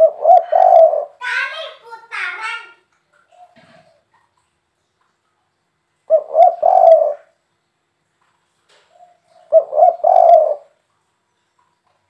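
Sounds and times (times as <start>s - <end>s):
dove cooing: 0.0s - 1.2s, 3.3s - 4.1s, 6.1s - 7.3s, 8.9s - 10.8s.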